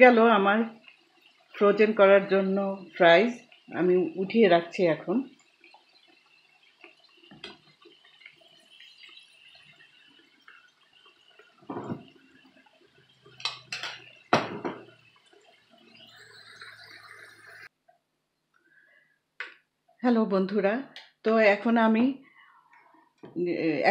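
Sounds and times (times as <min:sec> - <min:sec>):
potatoes sizzling in oil: 0:00.0 - 0:17.7
metal skimmer clanking on pan: 0:13.3 - 0:15.0.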